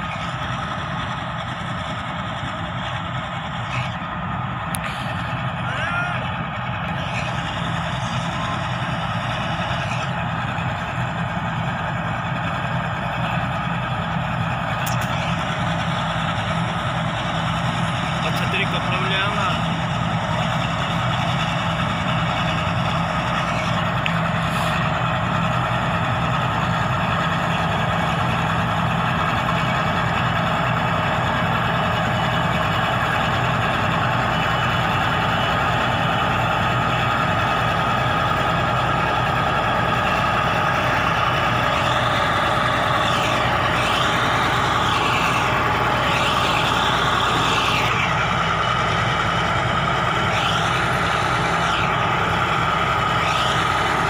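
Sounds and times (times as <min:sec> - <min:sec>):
bulldozer diesel engine running: 0:00.0 - 0:54.0
high-pitched squeals: 0:31.6 - 0:54.0.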